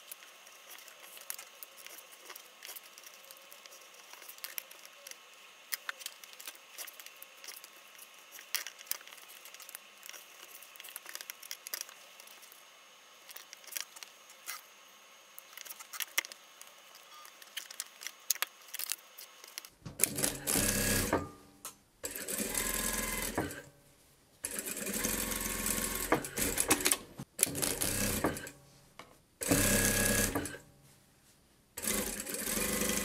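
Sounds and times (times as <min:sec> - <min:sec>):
sewing machine stitching: 0:20.0 - 0:21.2, 0:22.0 - 0:23.6, 0:24.4 - 0:28.5, 0:29.4 - 0:30.6, 0:31.8 - 0:33.0.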